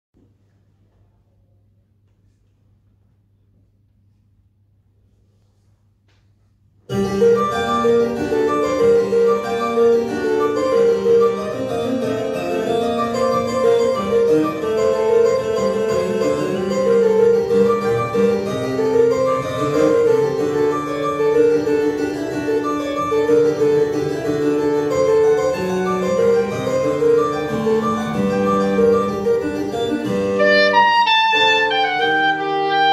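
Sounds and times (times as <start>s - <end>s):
keyboard accompaniment: 6.9s - 32.9s
soprano saxophone: 30.4s - 32.9s.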